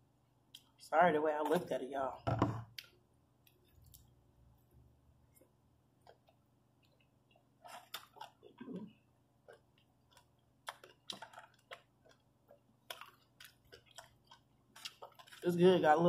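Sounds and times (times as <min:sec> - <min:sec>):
person chewing food: 0:02.8 - 0:04.3, 0:05.2 - 0:15.6.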